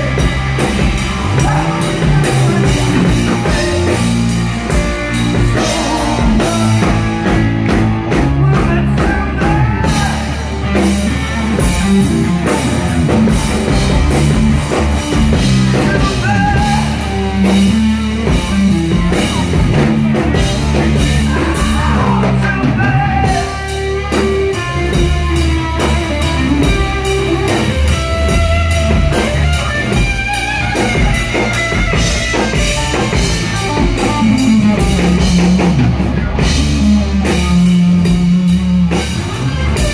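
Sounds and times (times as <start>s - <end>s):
bass guitar: 0.0s - 39.9s
drum kit: 0.0s - 39.9s
electric guitar: 0.0s - 39.9s
person singing: 1.2s - 4.2s, 5.1s - 10.5s, 15.6s - 18.6s, 20.7s - 25.0s, 32.9s - 39.5s.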